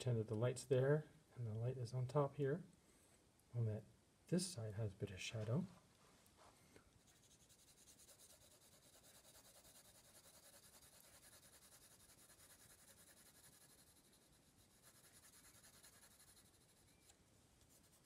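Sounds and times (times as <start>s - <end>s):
pencil scratching on card: 7.0s - 18.0s.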